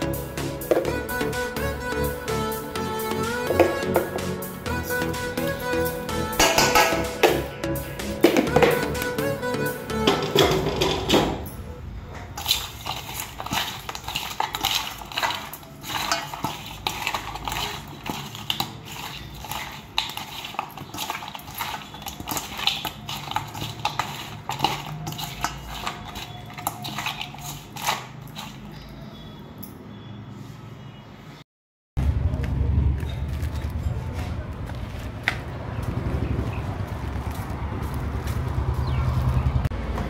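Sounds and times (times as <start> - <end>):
hands mixing fish in metal bowl: 6.4 - 7.4, 9.9 - 11.4, 12.3 - 29.0
clinks and scrapes against metal: 10.0 - 28.9.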